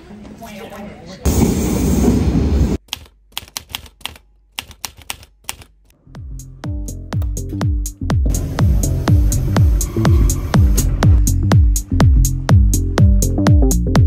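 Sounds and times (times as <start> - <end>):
typewriter key clicks: 2.9 - 5.7
electronic music with deep bass: 6.0 - 14.0.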